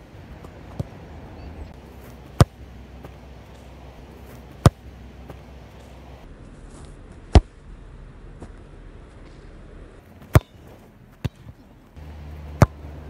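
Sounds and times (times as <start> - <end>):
football being kicked: 0.4 - 1.0, 1.8 - 6.2, 10.2 - 13.0.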